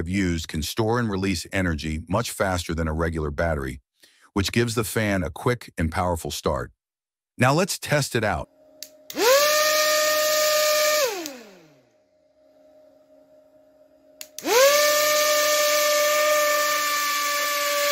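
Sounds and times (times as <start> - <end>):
small motor propeller whining: 9.1 - 11.8, 14.3 - 17.9
motor switch click: 11.1 - 11.5, 14.2 - 14.5.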